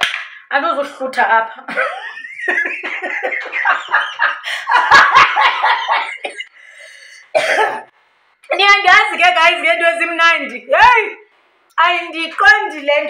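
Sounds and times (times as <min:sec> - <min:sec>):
woman laughing hard: 0:01.8 - 0:06.3.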